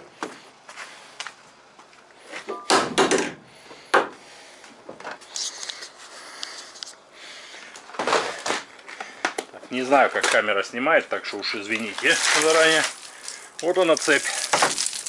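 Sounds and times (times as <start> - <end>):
rustle: 11.4 - 15.0.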